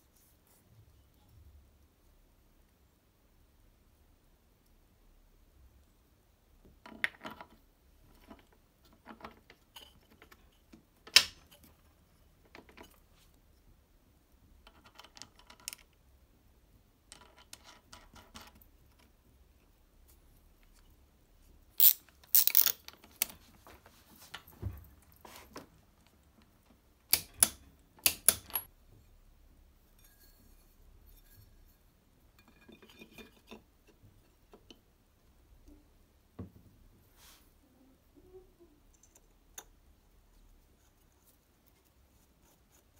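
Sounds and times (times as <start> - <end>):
metal parts clinking: 21.8 - 23.3.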